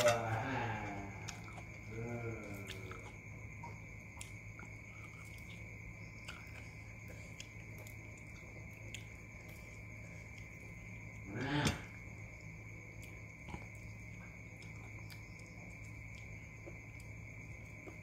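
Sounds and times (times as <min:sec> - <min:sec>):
chewing with wet clicks: 0:02.5 - 0:10.7, 0:12.9 - 0:18.0.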